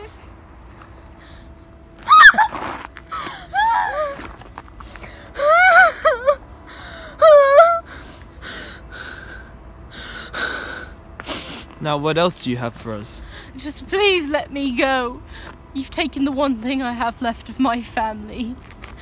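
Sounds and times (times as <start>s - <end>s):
woman sobbing wails: 2.1s - 4.4s, 5.3s - 8.1s.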